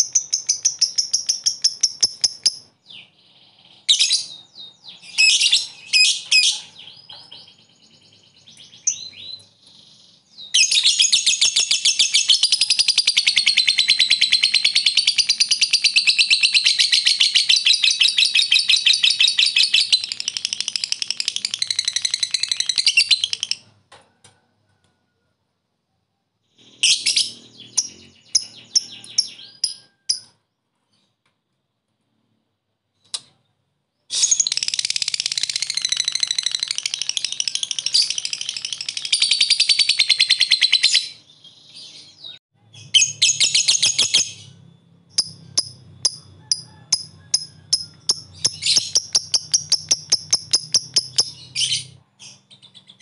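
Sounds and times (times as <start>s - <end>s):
bird chattering trill: 0.0s - 2.8s, 42.8s - 52.0s
bird chirps: 0.0s - 23.8s, 26.4s - 31.2s, 33.0s - 53.0s.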